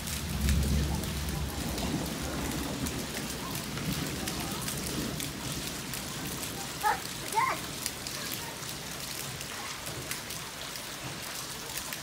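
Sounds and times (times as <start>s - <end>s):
rain falling on paving: 0.0s - 12.0s
water splashing from downspout: 0.0s - 12.0s.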